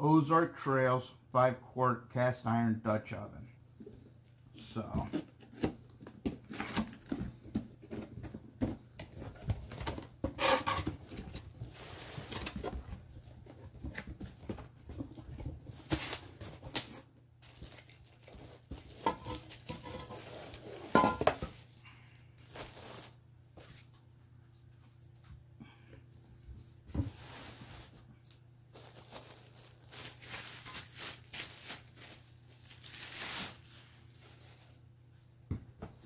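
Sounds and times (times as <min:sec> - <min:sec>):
plastic bag crinkling: 0:17.4 - 0:20.6, 0:22.4 - 0:23.2, 0:28.7 - 0:34.6.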